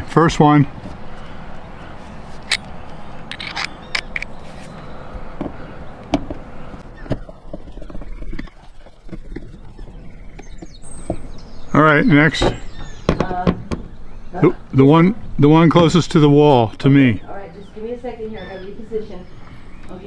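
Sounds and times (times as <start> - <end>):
screwdriver clicks and metal scrapes: 3.3 - 4.3.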